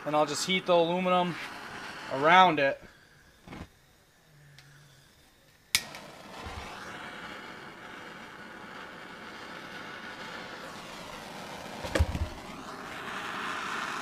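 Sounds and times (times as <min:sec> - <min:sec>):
torch flame hissing: 0:00.0 - 0:14.0
torch igniter click: 0:05.5 - 0:13.9.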